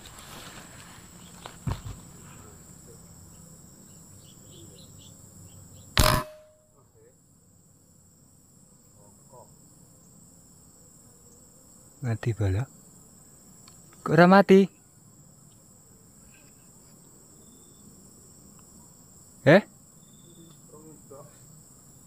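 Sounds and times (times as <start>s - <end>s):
insects humming: 0.0s - 22.0s
air rifle shot: 6.0s - 6.6s.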